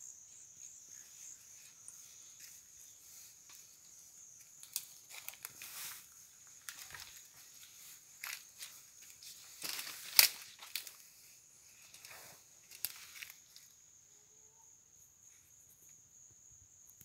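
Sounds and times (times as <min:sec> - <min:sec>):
high insect trill: 0:00.0 - 0:17.0
twig snapping: 0:04.6 - 0:05.5, 0:09.6 - 0:10.9
footsteps crunching through leaves: 0:04.6 - 0:13.7.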